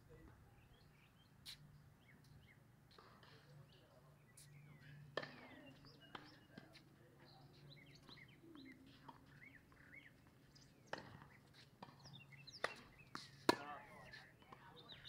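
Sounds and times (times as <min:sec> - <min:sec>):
birds chirping: 0:00.1 - 0:15.0
tennis ball bouncing on hard court: 0:05.1 - 0:06.8, 0:10.9 - 0:15.0
tennis ball hit by rackets: 0:10.9 - 0:14.6.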